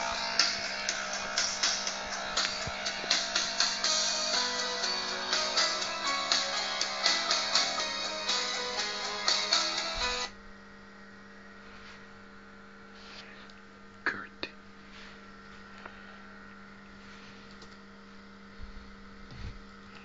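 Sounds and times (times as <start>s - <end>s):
guitar music: 0.0s - 10.3s
steady electrical hum: 0.0s - 20.0s.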